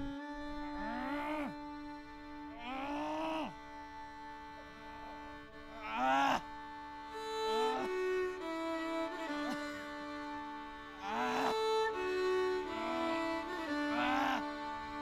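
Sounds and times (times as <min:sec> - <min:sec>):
strings holding a chord: 0:00.0 - 0:15.0
long moaning calls: 0:00.8 - 0:01.6, 0:02.5 - 0:03.6, 0:05.7 - 0:06.5, 0:10.9 - 0:15.0.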